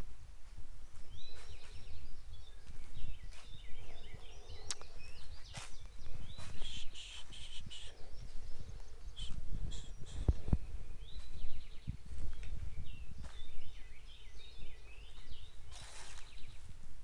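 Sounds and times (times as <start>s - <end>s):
birds chirping: 0.0s - 17.0s
sharp clicks: 4.7s - 4.9s
footsteps on plastic fabric: 15.1s - 16.4s.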